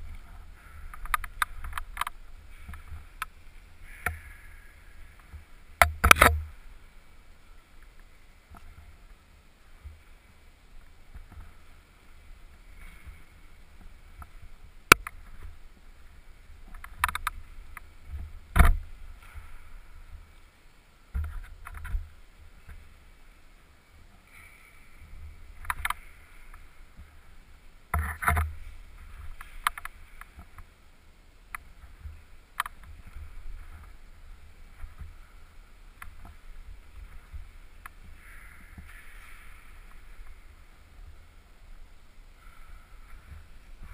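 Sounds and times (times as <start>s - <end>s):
camera housing rumble: 0.0s - 6.7s
sharp click: 5.8s - 6.4s.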